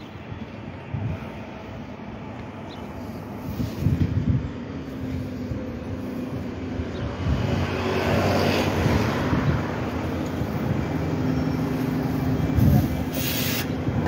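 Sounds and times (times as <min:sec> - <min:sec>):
traffic noise: 0:00.0 - 0:14.0
car passing: 0:04.5 - 0:12.6
bus engine running: 0:08.6 - 0:14.0.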